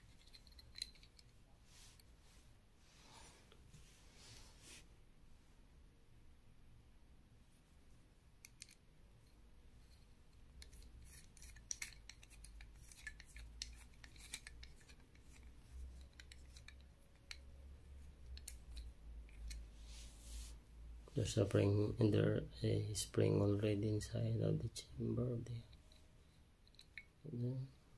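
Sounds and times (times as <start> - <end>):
metallic clicks and scrapes: 0.0 - 2.1, 8.4 - 19.7, 25.5 - 27.2.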